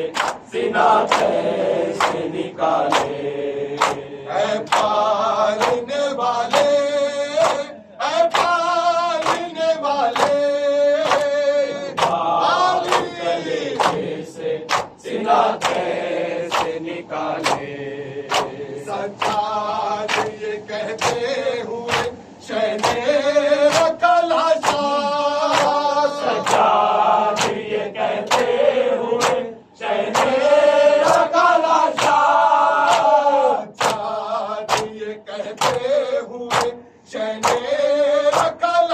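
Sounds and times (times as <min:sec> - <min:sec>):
group of men chanting: 0:00.0 - 0:38.9
hands slapping on chests: 0:00.2 - 0:00.4, 0:01.0 - 0:01.4, 0:02.0 - 0:03.2, 0:03.8 - 0:04.0, 0:04.6 - 0:05.0, 0:08.3 - 0:08.6, 0:09.2 - 0:09.5, 0:12.0 - 0:12.2, 0:13.8 - 0:14.0, 0:14.7 - 0:15.0, 0:15.6 - 0:15.9, 0:16.5 - 0:16.8, 0:17.4 - 0:17.7, 0:18.3 - 0:18.6, 0:19.2 - 0:19.5, 0:22.8 - 0:23.0, 0:24.6 - 0:24.9, 0:25.5 - 0:25.8, 0:27.4 - 0:27.6, 0:28.2 - 0:28.5, 0:29.2 - 0:29.5, 0:30.1 - 0:30.4, 0:31.9 - 0:33.2, 0:33.8 - 0:34.1, 0:34.7 - 0:34.9, 0:35.6 - 0:36.8, 0:37.4 - 0:37.7, 0:38.3 - 0:38.6.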